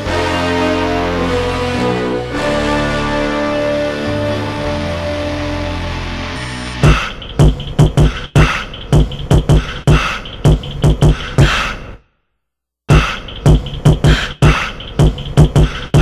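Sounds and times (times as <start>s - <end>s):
hip-hop drum beat: 6.8s - 11.6s, 12.9s - 16.0s.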